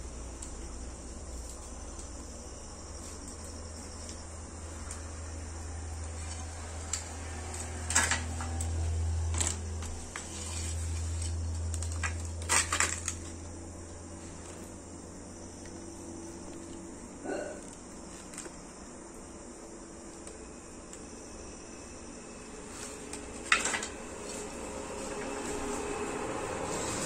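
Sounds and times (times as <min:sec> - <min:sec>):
crickets chirping: 0:00.0 - 0:27.0.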